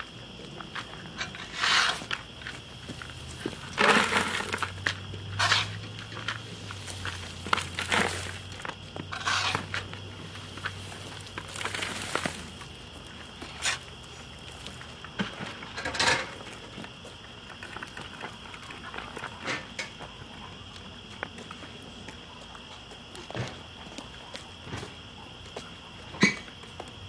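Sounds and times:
wood chips crunching and scraping: 0.3s - 19.4s.

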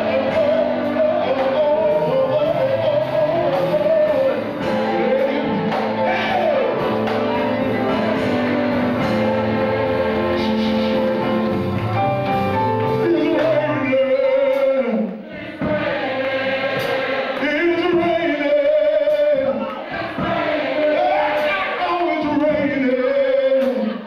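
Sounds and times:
man singing into a microphone: 0.0s - 8.0s, 13.0s - 15.9s, 17.4s - 19.6s, 20.8s - 24.0s
gospel music chords: 0.0s - 24.0s.

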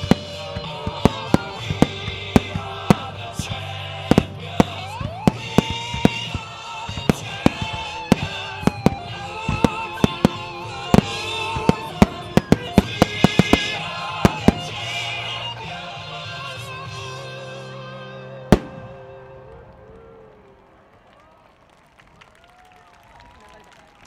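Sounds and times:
fireworks exploding: 0.0s - 16.0s, 18.5s - 21.0s.

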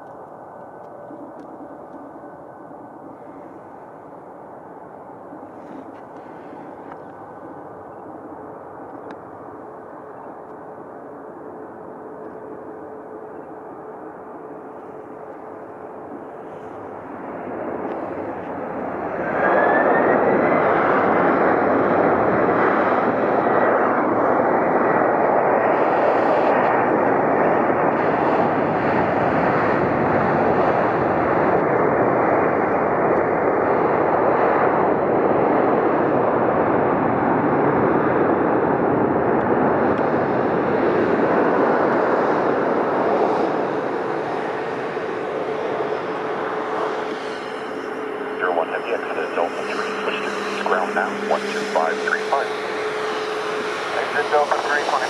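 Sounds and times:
jet engines reverse thrust roar: 0.0s - 55.0s.

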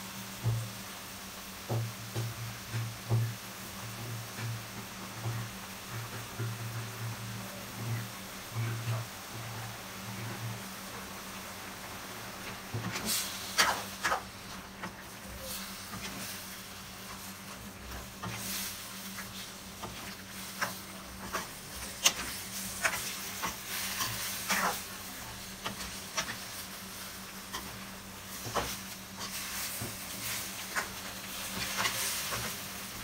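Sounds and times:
food sizzling in a frying pan: 0.0s - 33.0s
spatula scraping a pan: 14.9s - 32.7s.

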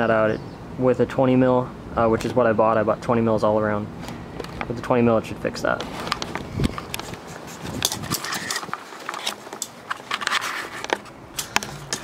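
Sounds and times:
camera handling noise: 5.8s - 12.0s.

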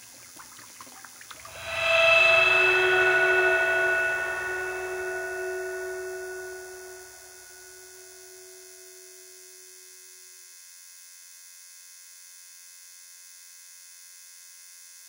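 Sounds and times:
thin high buzz: 1.5s - 8.9s.

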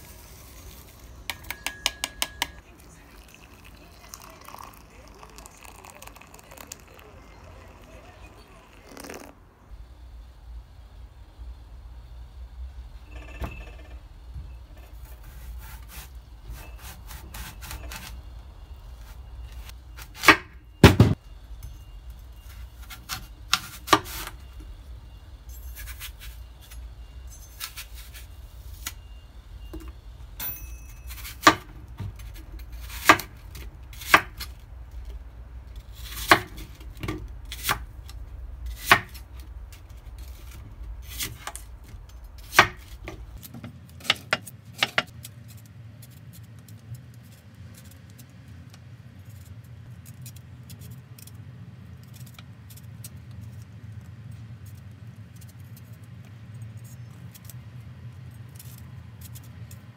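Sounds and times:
low steady hum: 0.0s - 43.7s.

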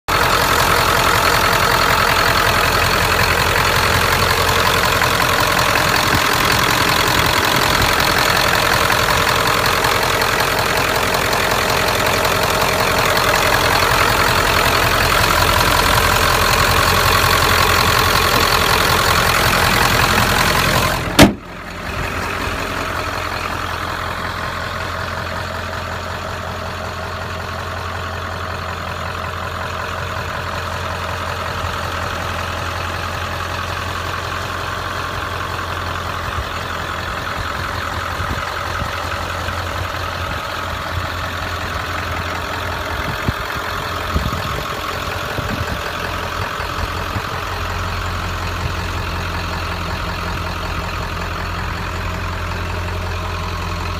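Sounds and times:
diesel engine idling: 0.0s - 53.9s
sharp bang: 21.2s - 21.6s.

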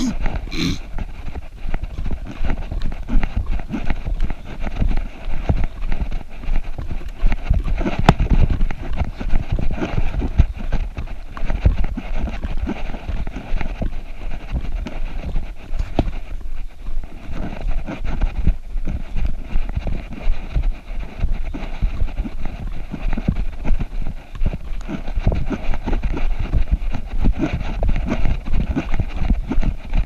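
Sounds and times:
footsteps on dirt trail: 0.0s - 30.0s
handheld camera rumble: 0.0s - 30.0s.

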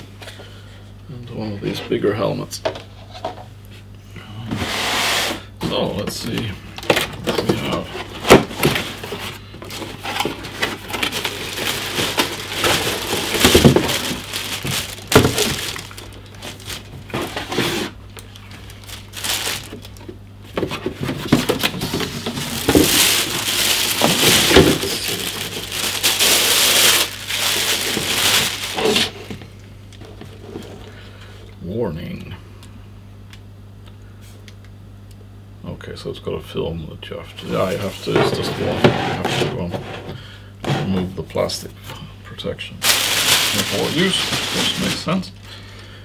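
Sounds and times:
plastic bag crinkling: 8.4s - 20.2s, 21.3s - 29.3s, 42.8s - 45.2s.

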